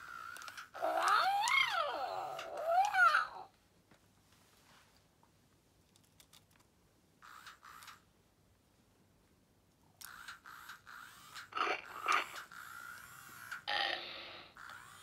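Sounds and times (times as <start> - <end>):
electronic toy creature calls: 0.0 - 3.5, 10.1 - 15.0.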